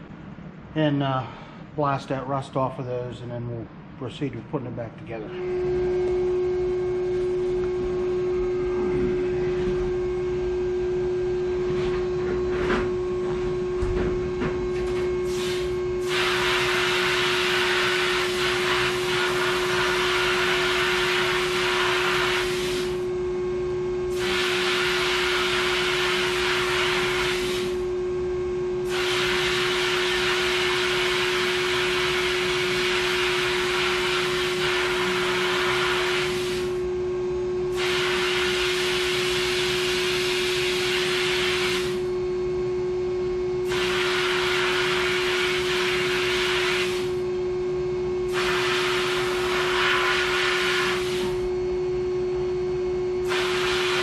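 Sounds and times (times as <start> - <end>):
motor hum: 4.7 - 38.0
sandblast gun hissing: 15.2 - 23.0, 24.1 - 27.8, 28.9 - 36.8, 37.8 - 39.7, 40.3 - 42.0, 43.7 - 47.2, 48.3 - 51.4, 53.3 - 54.0.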